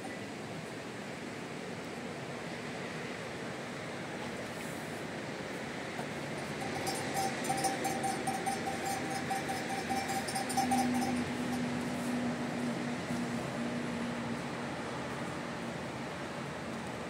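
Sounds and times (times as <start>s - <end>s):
low steady hum: 6.1s - 17.0s.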